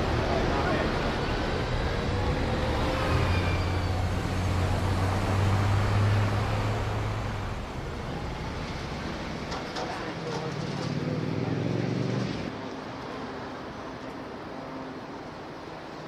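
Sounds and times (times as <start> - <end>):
bus engine droning: 0.0 - 12.5
city traffic noise: 0.0 - 16.0.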